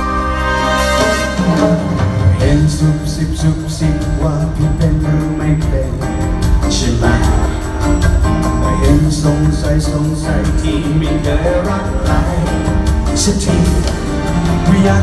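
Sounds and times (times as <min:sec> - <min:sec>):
bass line: 0:00.0 - 0:15.0
live pop band instrumental: 0:00.0 - 0:15.0
steady drum beat: 0:00.0 - 0:15.0.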